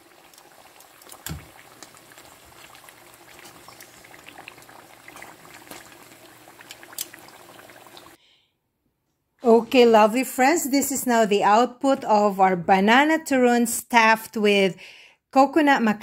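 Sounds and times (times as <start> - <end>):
food sizzling in hot oil: 0.0 - 8.2.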